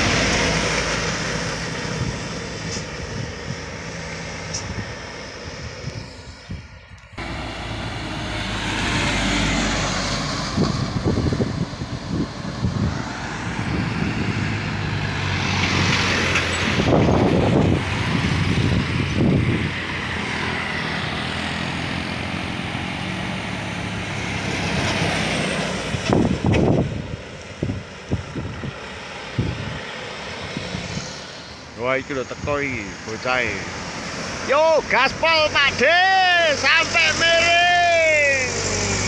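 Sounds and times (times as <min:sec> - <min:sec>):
bus engine: 0:00.0 - 0:39.0
motorcycle passing: 0:07.2 - 0:26.8.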